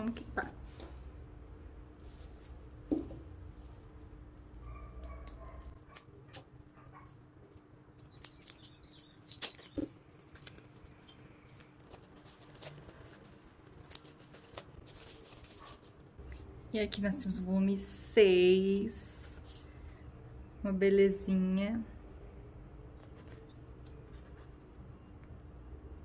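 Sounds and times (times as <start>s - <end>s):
faint steady hum: 0.0s - 26.0s
shrink wrap crinkling: 1.8s - 16.5s.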